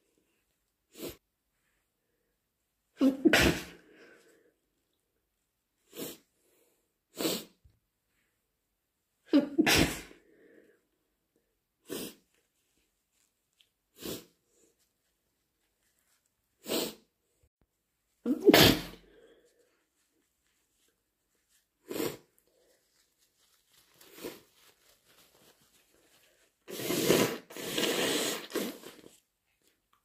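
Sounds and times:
person sneezing: 0:03.0 - 0:04.1, 0:07.2 - 0:07.6, 0:09.3 - 0:10.2, 0:16.6 - 0:17.0, 0:18.2 - 0:19.4, 0:26.7 - 0:29.0.

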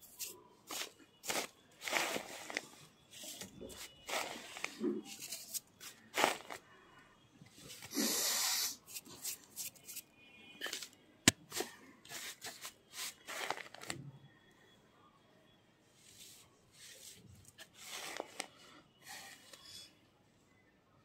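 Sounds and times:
fingers crunching powder: 0:00.2 - 0:02.7, 0:03.3 - 0:06.6.

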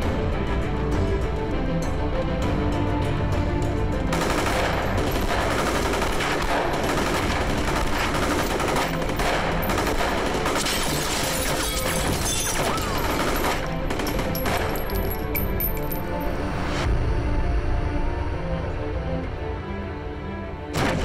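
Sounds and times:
automatic gunfire: 0:04.2 - 0:11.3.

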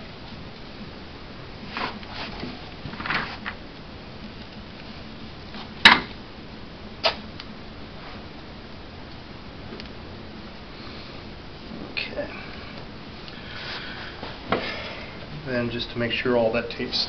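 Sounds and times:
tape pulled off roll: 0:07.0 - 0:07.2
sharp tape snap: 0:07.0 - 0:07.5.

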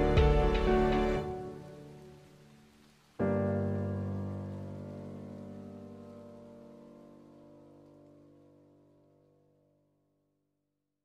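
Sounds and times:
held piano chord: 0:00.0 - 0:02.0.

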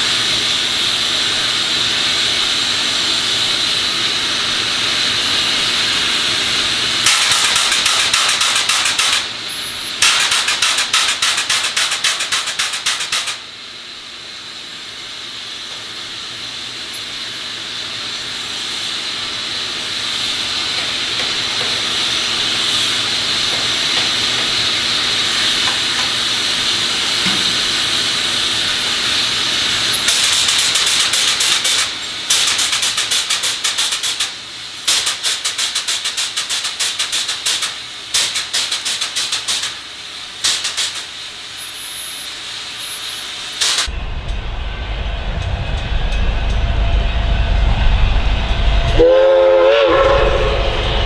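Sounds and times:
steam hissing from locomotive: 0:00.0 - 0:51.0
low rumble of train passing: 0:39.8 - 0:51.0.

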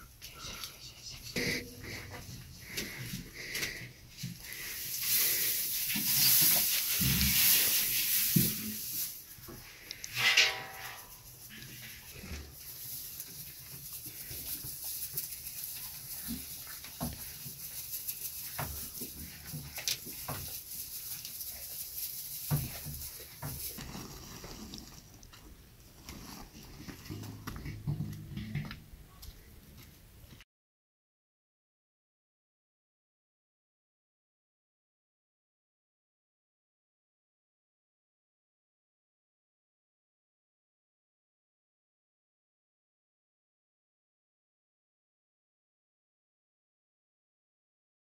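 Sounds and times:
dry hay rustling and hissing: 0:02.6 - 0:10.2, 0:10.8 - 0:25.1.

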